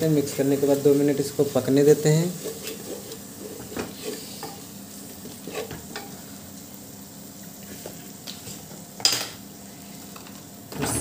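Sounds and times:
masala sizzling and bubbling: 0.0 - 11.0
wooden spatula scraping pot: 2.3 - 4.6, 5.3 - 6.1.

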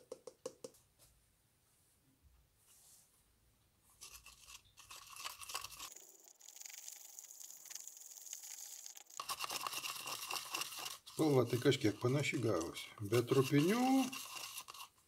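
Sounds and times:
wooden stick scraping cup: 4.0 - 15.0.

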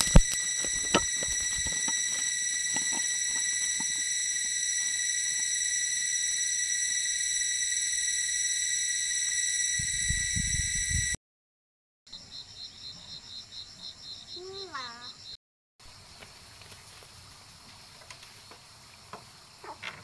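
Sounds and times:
high-pitched insect drone: 0.0 - 11.2.

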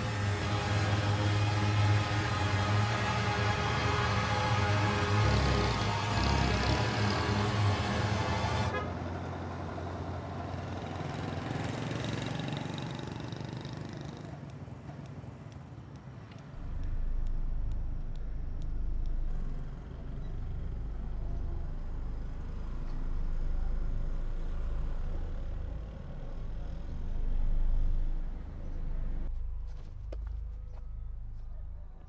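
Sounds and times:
background music: 0.0 - 8.7
low engine rumble of passing vehicle: 0.0 - 32.0.

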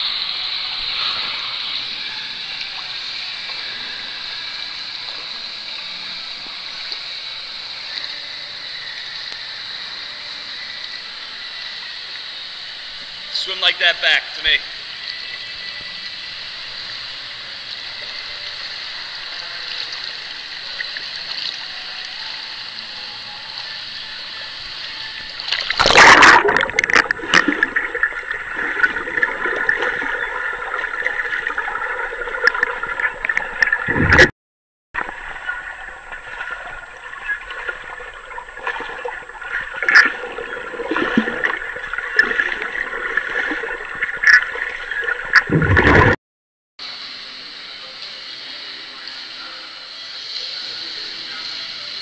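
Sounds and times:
steady hum: 0.0 - 34.3, 35.0 - 46.2
swimmer splashing: 13.4 - 34.3, 35.0 - 46.2
underwater bubbling and sloshing: 23.5 - 34.3, 35.0 - 46.2.

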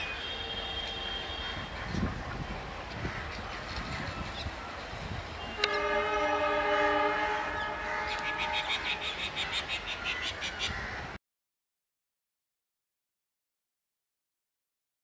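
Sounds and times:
train rumbling: 1.6 - 9.4
train horn blast: 5.4 - 9.0.

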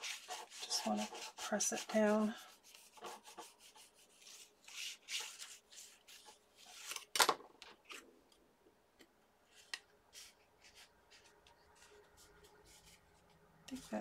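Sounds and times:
paper rustling: 0.0 - 8.1.

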